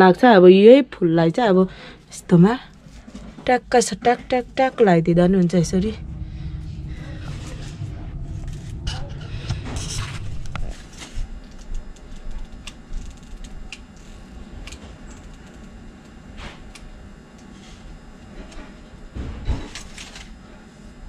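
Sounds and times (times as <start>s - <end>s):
low rumble: 2.8s - 12.9s.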